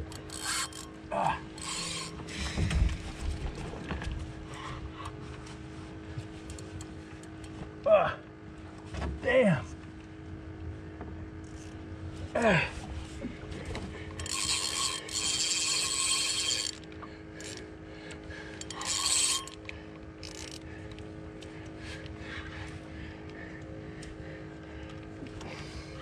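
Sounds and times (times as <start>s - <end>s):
fishing reel drag buzzing: 0.1s - 2.4s, 11.4s - 11.8s, 14.2s - 17.7s, 18.5s - 20.6s.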